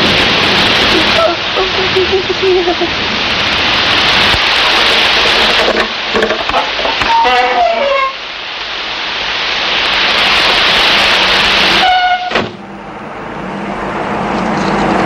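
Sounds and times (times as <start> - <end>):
loud steady hiss: 0.0 - 15.0
brief horn-like tone: 11.8 - 12.4.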